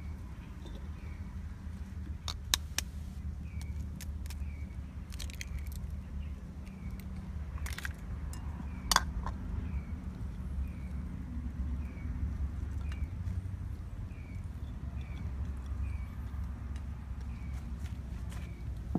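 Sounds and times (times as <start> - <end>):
eggshells cracking on a knife: 3.5 - 9.4.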